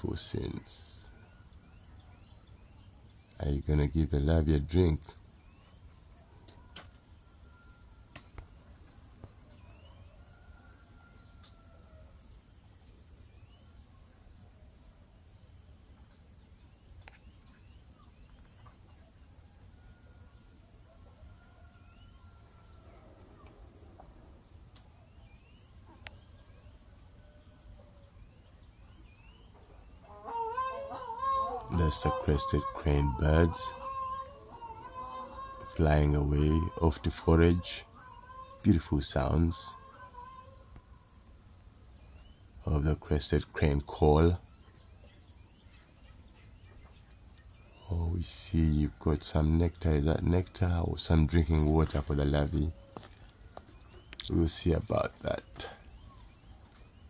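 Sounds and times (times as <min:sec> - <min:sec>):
distant crane calls: 0:00.0 - 0:12.4, 0:17.0 - 0:57.0
insect trilling: 0:00.0 - 0:57.0
bird chirps: 0:12.9 - 0:20.6, 0:21.4 - 0:57.0.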